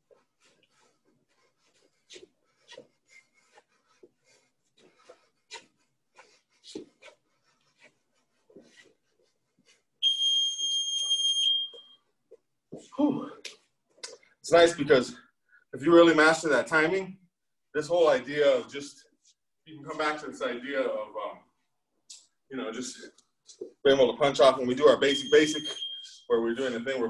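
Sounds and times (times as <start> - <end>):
footwork scuffs on floor: 0.0 - 13.0
loud electronic beep: 25.1 - 26.2.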